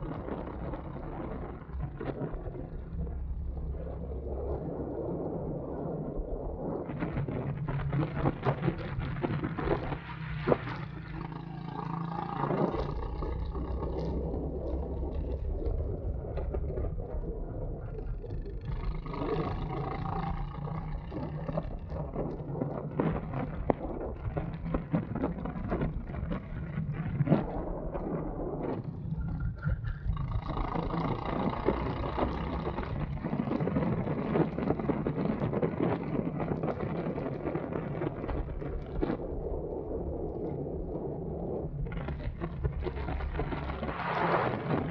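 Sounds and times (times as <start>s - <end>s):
constant low rumble: 0.0s - 44.9s
go-kart engine running: 7.6s - 27.9s, 28.5s - 38.3s.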